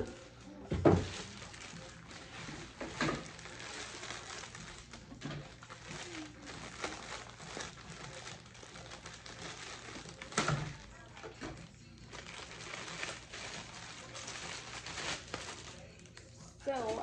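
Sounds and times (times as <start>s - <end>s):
plastic mailer bag crinkling: 0.0s - 17.0s.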